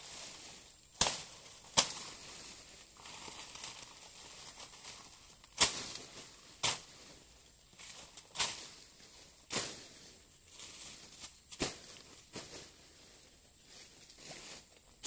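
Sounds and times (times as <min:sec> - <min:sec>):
dry leaves crackling and rustling: 0:00.0 - 0:15.0
machete chopping banana plant: 0:00.9 - 0:02.3, 0:05.5 - 0:07.0, 0:09.5 - 0:10.0, 0:11.5 - 0:12.1.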